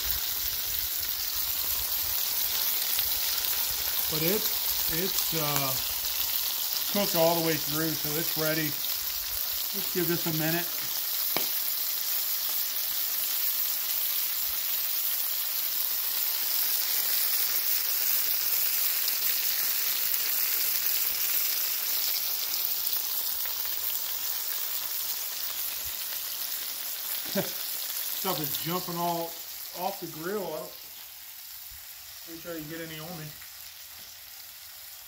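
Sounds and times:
meat sizzling on a griddle: 0.0s - 35.0s.

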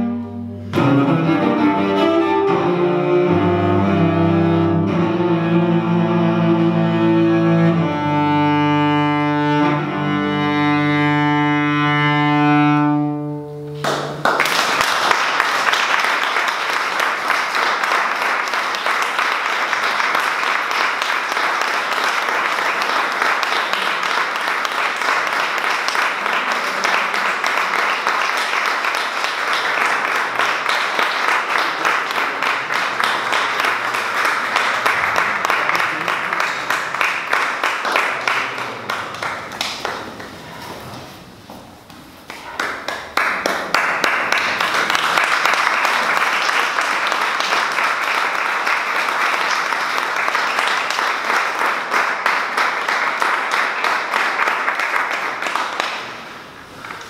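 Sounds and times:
audience applauding: 13.8s - 40.7s, 42.2s - 57.0s.

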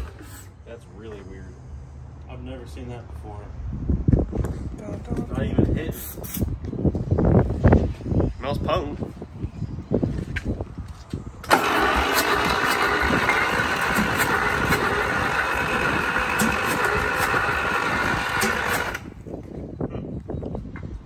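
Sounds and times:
starter cranking diesel engine: 11.4s - 19.3s.

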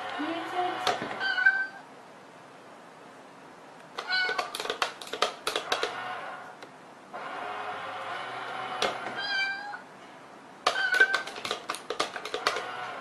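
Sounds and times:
cat meowing: 1.2s - 1.9s, 4.0s - 4.6s, 9.1s - 9.9s, 10.7s - 11.4s
cat pawing at a toy box: 4.0s - 6.0s, 10.7s - 12.8s.

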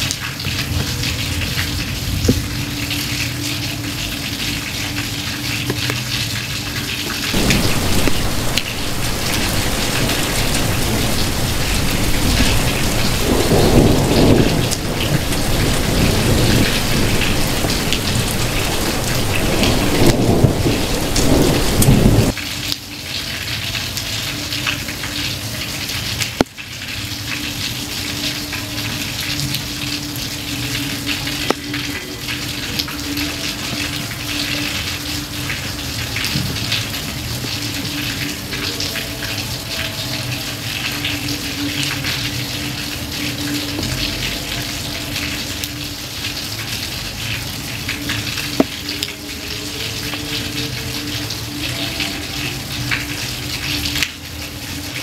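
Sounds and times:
steady rain falling: 0.0s - 55.0s
thunder rolling: 7.3s - 22.3s.

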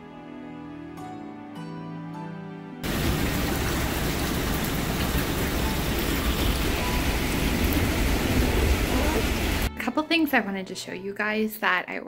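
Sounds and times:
steady rain falling: 2.8s - 9.7s.

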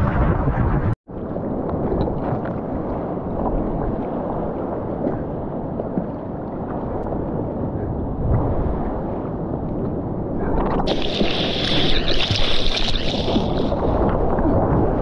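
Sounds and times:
small water splashes: 10.9s - 14.7s.

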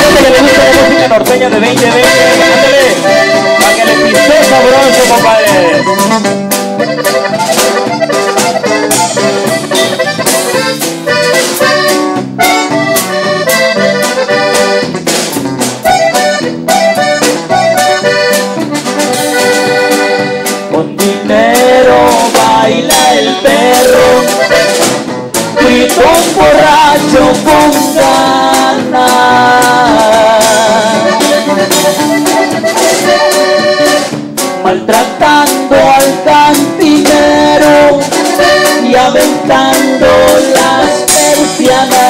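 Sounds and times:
person singing or calling out: 0.0s - 6.4s, 20.7s - 24.7s, 25.6s - 32.0s, 34.6s - 42.0s
button accordion: 0.0s - 42.0s
drum kit beat: 0.0s - 42.0s
keyboard: 0.0s - 42.0s.

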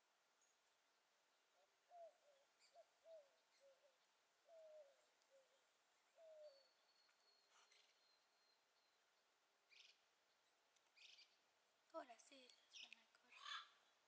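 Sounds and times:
bird hooting: 1.9s - 6.9s.

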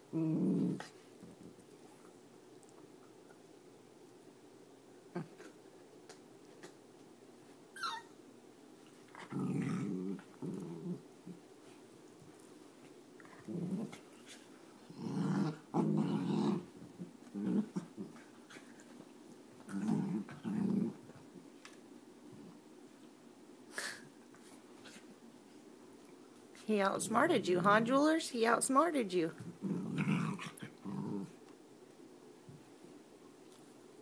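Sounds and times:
dogs growling in play: 0.0s - 2.7s, 8.9s - 11.8s, 13.2s - 19.0s, 19.6s - 21.5s, 29.4s - 31.6s.

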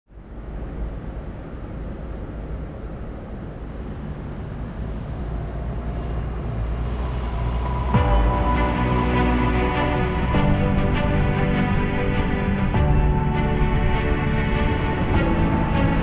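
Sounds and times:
deep steady rumble: 0.1s - 16.0s
faint musical tones: 0.2s - 16.0s.

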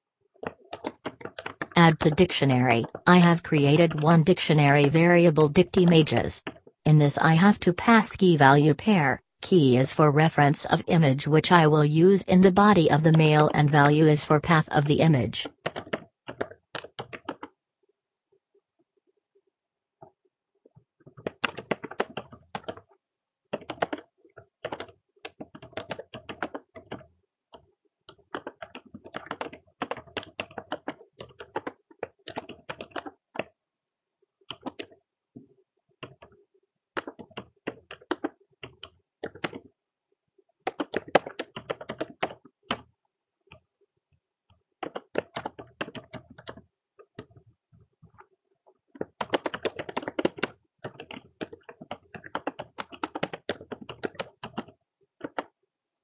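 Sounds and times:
typing on a computer keyboard: 0.4s - 6.7s, 15.4s - 17.6s, 21.1s - 33.6s, 34.4s - 39.8s, 40.4s - 43.7s, 44.4s - 55.6s.

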